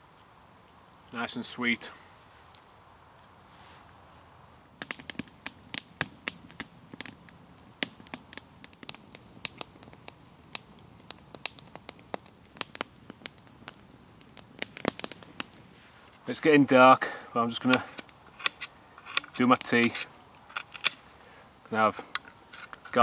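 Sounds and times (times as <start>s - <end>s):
wood fire crackling: 0.0s - 23.0s
sharp snaps and pops: 2.5s - 3.4s, 4.8s - 16.3s, 17.4s - 23.0s.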